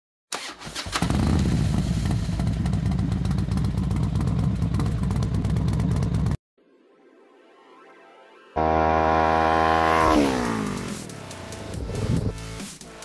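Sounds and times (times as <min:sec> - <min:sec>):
motorcycle engine running: 0:01.0 - 0:06.4, 0:08.6 - 0:12.5.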